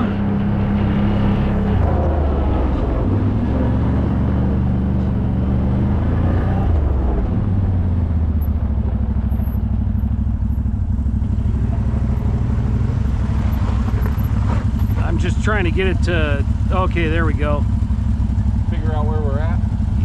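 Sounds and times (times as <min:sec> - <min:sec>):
atv engine running: 0:00.0 - 0:20.0.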